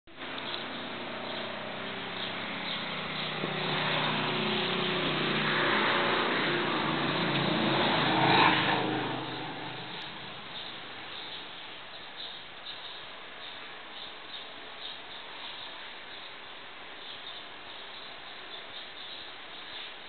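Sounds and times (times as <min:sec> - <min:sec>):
motor vehicle passing: 0:00.6 - 0:11.1.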